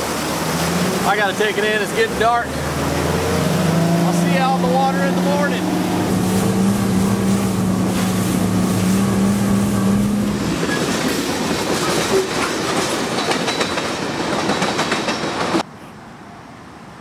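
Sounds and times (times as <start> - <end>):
outboard motor running: 0.0 - 10.5
train wheels clacking over rail joints: 10.6 - 15.6.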